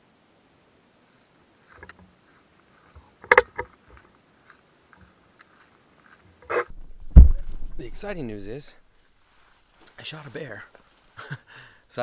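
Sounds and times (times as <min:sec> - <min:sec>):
sharp knock: 0:06.7 - 0:08.2.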